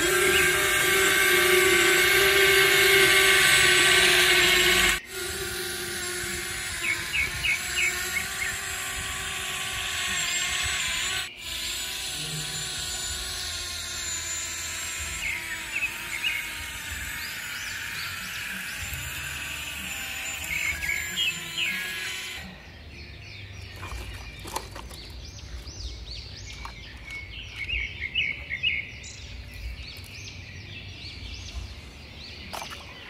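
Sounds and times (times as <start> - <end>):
small electric motors whining: 0.0 - 22.8.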